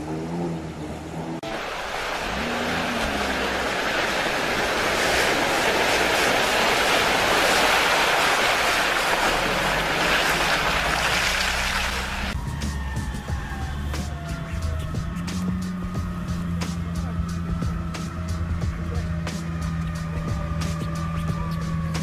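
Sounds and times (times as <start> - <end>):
low engine drone: 0.0 - 22.0
splashing water and mud: 1.4 - 12.4.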